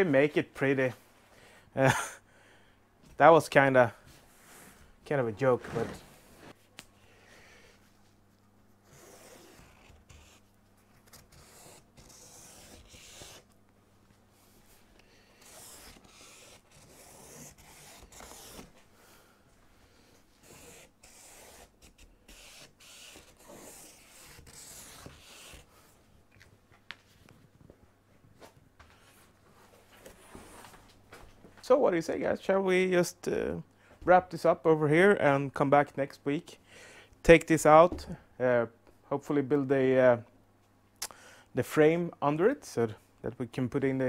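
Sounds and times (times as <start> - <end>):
marker scratching on plywood: 8.9 - 10.5, 11.2 - 13.5, 15.4 - 18.7, 20.4 - 25.6.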